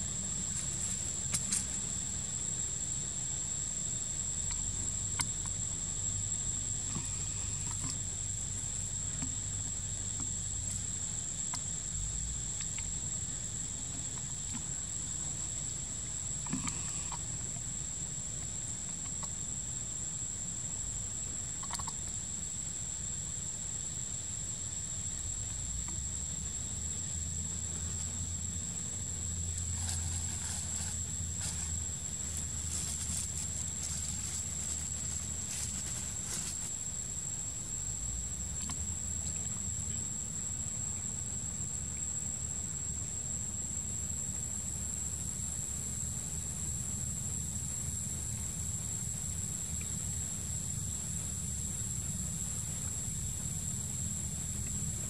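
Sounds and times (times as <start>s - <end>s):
high-pitched insect drone: 29.2s - 38.7s.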